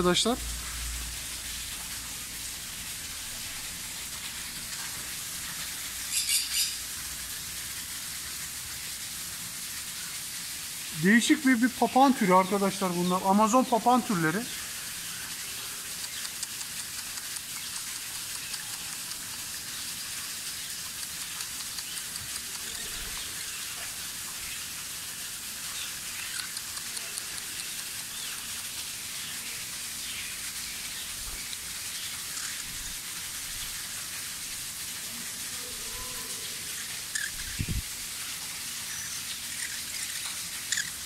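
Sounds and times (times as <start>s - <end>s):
steady hiss: 0.0s - 41.0s
small birds chirping: 6.0s - 6.8s, 11.2s - 24.7s, 25.6s - 28.5s, 36.4s - 37.8s, 38.8s - 41.0s.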